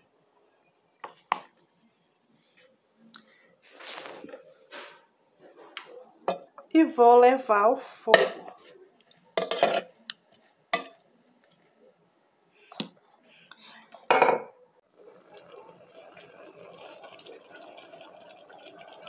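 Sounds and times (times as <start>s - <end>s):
metal spoon scraping metal bowl: 9.4s - 10.0s.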